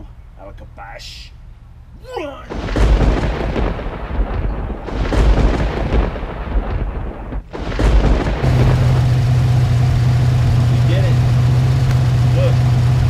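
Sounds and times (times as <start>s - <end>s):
loud uneven rumble: 2.5s - 13.0s
car engine idling: 8.4s - 13.0s.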